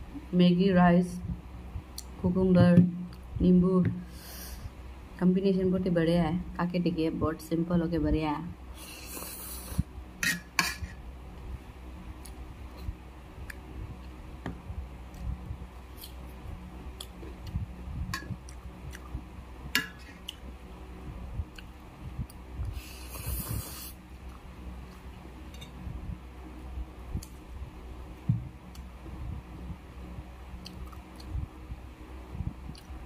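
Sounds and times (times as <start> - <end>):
person chewing: 15.9 - 16.2, 18.4 - 19.2, 30.6 - 31.4.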